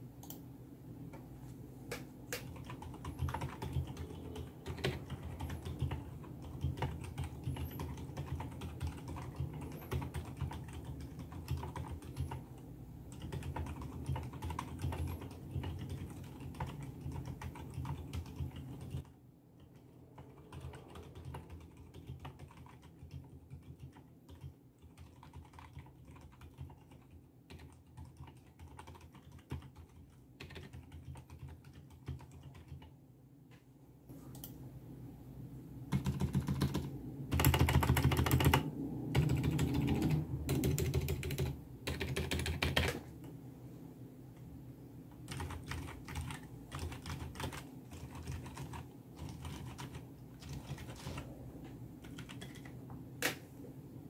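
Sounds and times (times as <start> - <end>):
muffled mechanical keyboard typing: 1.9 - 32.9, 35.9 - 43.3, 45.1 - 52.9.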